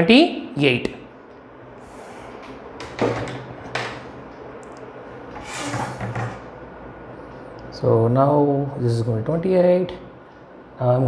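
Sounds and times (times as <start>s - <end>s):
objects scraping on wooden table: 5.4s - 6.5s.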